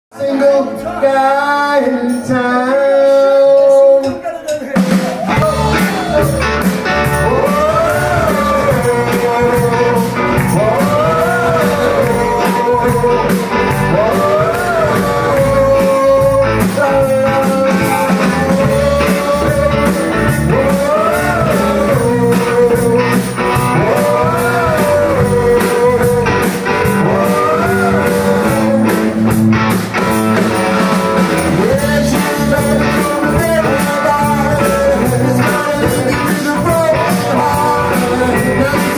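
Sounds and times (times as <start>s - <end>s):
blues-rock band playing: 2.9s - 38.9s.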